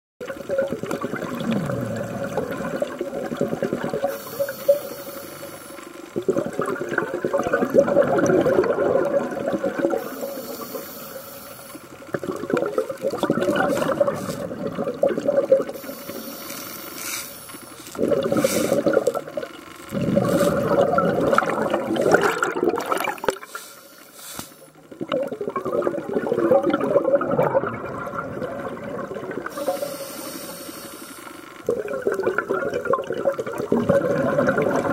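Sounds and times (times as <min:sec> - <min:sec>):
diver exhaling bubbles underwater: 0:00.2 - 0:11.2, 0:11.9 - 0:23.8, 0:24.6 - 0:34.9
faint steady tone: 0:04.0 - 0:06.2, 0:09.9 - 0:12.2, 0:29.4 - 0:31.7
diver inhaling: 0:04.1 - 0:05.9, 0:10.0 - 0:11.8, 0:15.8 - 0:19.0, 0:19.9 - 0:20.9, 0:29.5 - 0:31.5.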